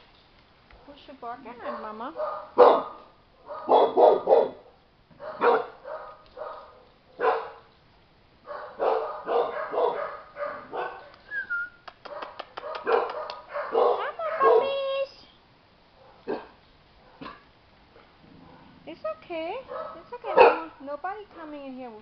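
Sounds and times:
dog barking: 1.6s - 7.7s, 8.4s - 11.3s, 12.0s - 14.9s, 16.0s - 17.5s, 19.7s - 20.8s.

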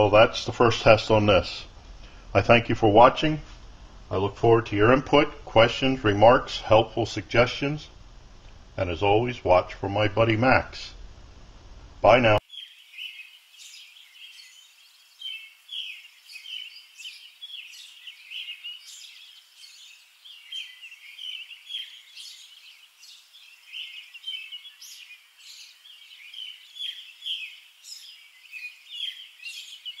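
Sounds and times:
small birds chirping: 12.0s - 30.0s.

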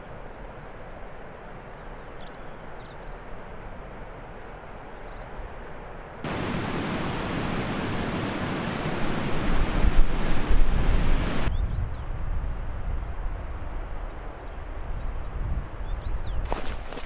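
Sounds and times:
wind buffeting microphone: 6.2s - 17.0s.

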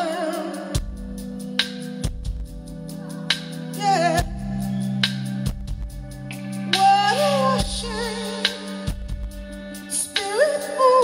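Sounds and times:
woman singing: 0.0s - 1.1s, 2.9s - 5.0s, 6.7s - 8.9s, 9.8s - 11.0s
rock band playing live: 0.0s - 11.0s.

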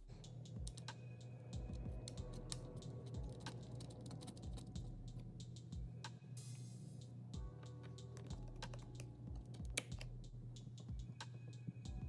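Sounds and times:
low steady hum: 0.0s - 12.0s
computer parts clicking: 0.6s - 0.9s.

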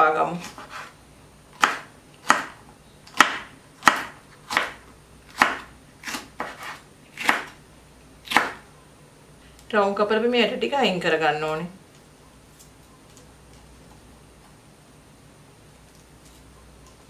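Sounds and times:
knife slicing pepper on board: 1.6s - 7.6s, 8.3s - 8.6s.

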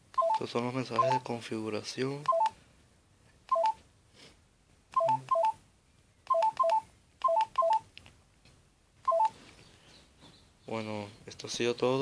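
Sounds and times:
phone keypad beeping: 0.1s - 1.3s, 2.2s - 2.6s, 3.5s - 3.8s, 4.9s - 5.6s, 6.3s - 7.9s, 9.0s - 9.4s.

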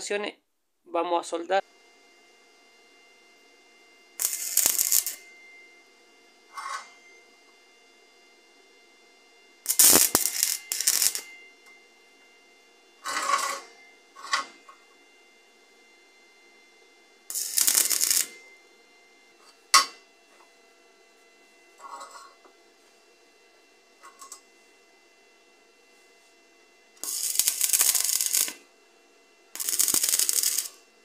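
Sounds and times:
welding arc crackling and sputtering: 4.2s - 5.2s, 9.6s - 11.3s, 13.0s - 14.7s, 17.3s - 18.4s, 27.0s - 28.6s, 29.5s - 30.8s.

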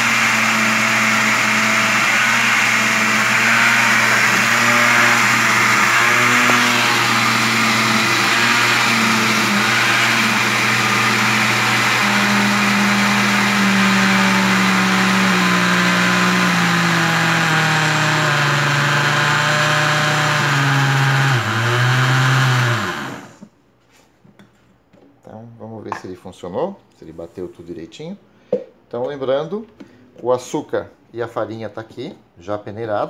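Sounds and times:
blender motor running: 0.0s - 23.4s.

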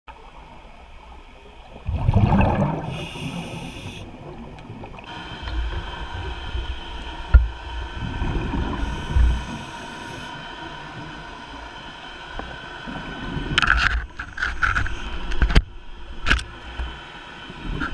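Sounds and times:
faint steady whine: 0.1s - 17.9s
diver exhaling bubbles: 1.8s - 5.0s
regulator inhale hiss: 2.8s - 4.4s, 5.1s - 11.0s.

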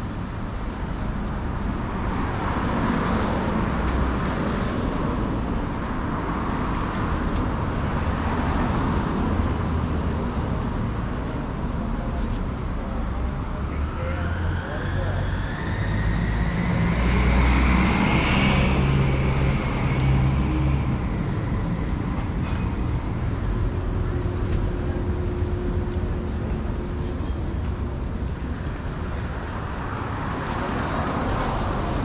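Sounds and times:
large vehicle engine rumble: 0.0s - 32.0s
steady traffic noise: 0.0s - 32.0s
rising engine whine: 13.3s - 22.4s.

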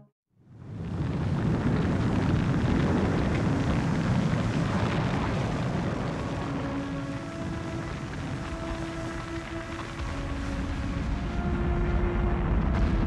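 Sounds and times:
deep rumble of pyroclastic flow: 0.4s - 13.0s
faint sustained music tones: 5.9s - 13.0s.

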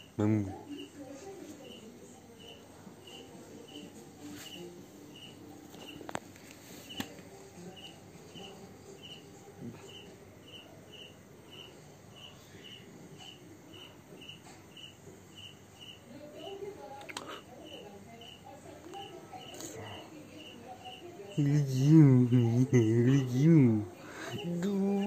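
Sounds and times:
cricket chirping: 7.8s - 16.6s, 17.6s - 18.5s.

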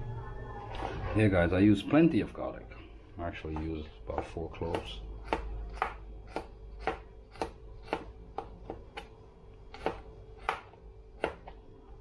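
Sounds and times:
knife chopping on plastic board: 3.6s - 11.6s.

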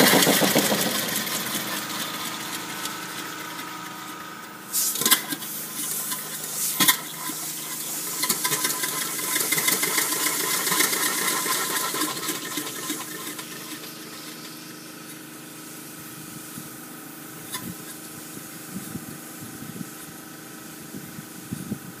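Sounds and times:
steam engine hissing: 0.0s - 21.3s.

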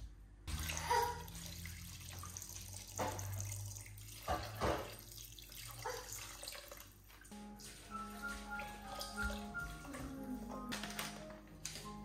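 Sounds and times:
water pouring into a pot: 0.5s - 7.0s.

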